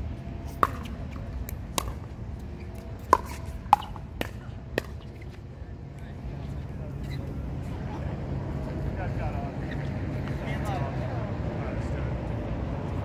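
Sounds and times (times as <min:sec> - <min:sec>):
paddles hitting plastic ball: 0:00.5 - 0:02.2, 0:02.8 - 0:05.1.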